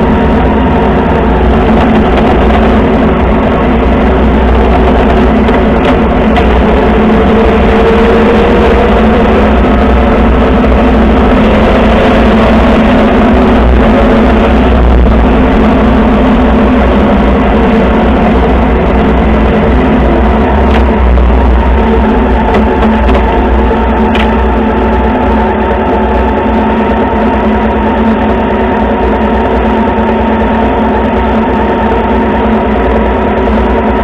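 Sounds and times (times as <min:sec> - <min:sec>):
motorcycle engine cruising: 0:00.0 - 0:26.6
wind and road noise: 0:00.0 - 0:34.0.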